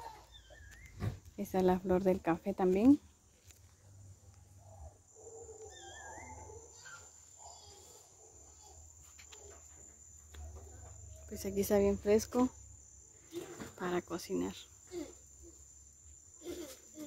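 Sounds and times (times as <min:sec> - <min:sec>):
high-pitched insect trill: 0:04.8 - 0:17.0.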